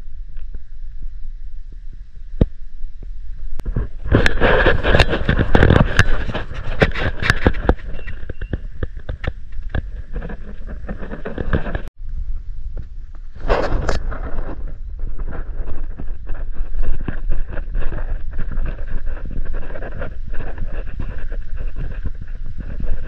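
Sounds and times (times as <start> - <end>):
wind rumbling on microphone: 0.0 - 23.0
footsteps crunching dry grass: 3.6 - 11.9.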